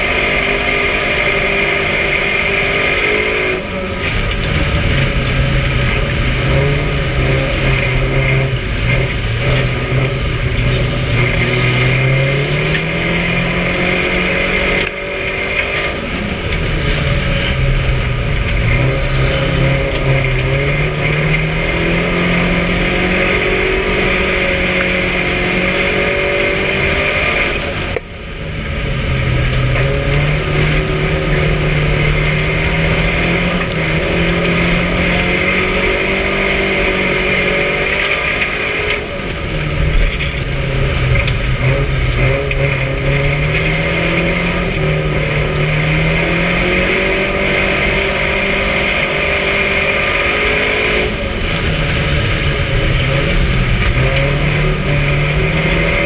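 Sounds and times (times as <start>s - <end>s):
race car engine revving: 0.0s - 56.0s
road and wind noise: 0.0s - 56.0s.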